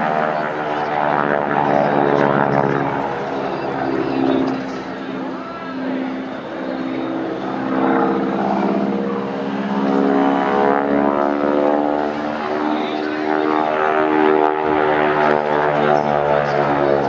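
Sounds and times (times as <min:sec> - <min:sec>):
propeller plane engine droning: 0:00.0 - 0:17.0.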